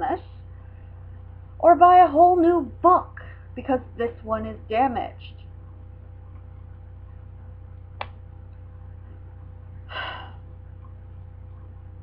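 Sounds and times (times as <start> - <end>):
low electrical hum: 0.0 - 12.0.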